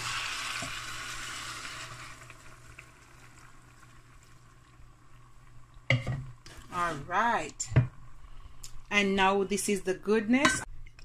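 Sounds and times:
boiling water pouring: 0.0s - 8.3s.

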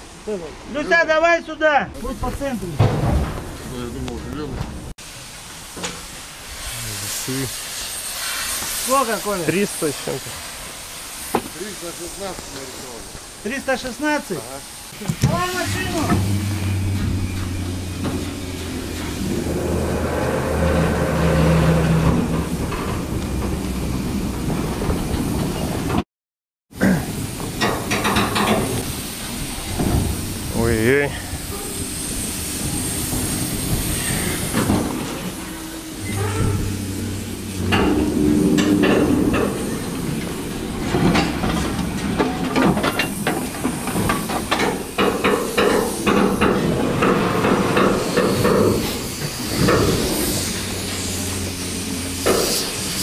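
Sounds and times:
crane engine running: 15.0s - 26.0s, 27.4s - 53.0s
metallic clanks and knocks: 15.1s - 23.7s, 27.4s - 28.8s, 36.0s - 49.0s.

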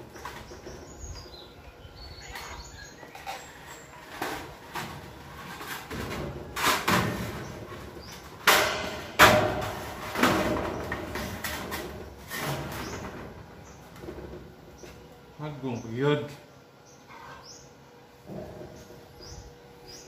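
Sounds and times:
metal roofing sheet knocking and rattling: 4.1s - 13.4s.

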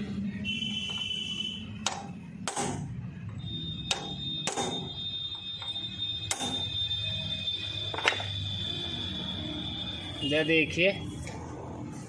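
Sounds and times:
high ringing tone: 3.3s - 10.7s
hammer striking steel drift: 3.9s - 4.9s.

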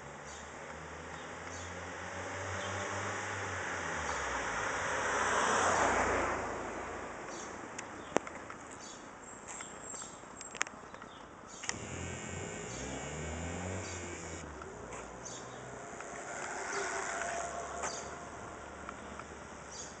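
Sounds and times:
electric bicycle motor whining: 11.7s - 14.8s.

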